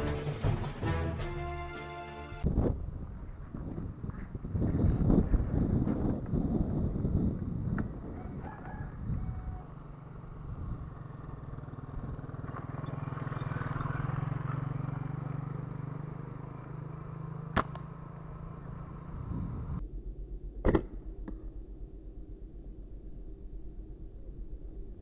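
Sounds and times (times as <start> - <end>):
motorbike engine passing: 9.2 - 19.8
slingshot snap: 17.5 - 17.9.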